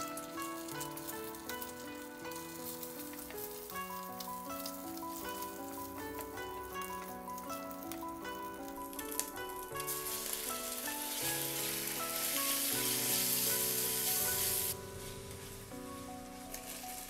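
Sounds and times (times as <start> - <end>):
spatula in pan: 0.0 - 5.9, 8.8 - 14.8
background music: 0.0 - 17.0
egg sizzling in oil: 0.0 - 17.0.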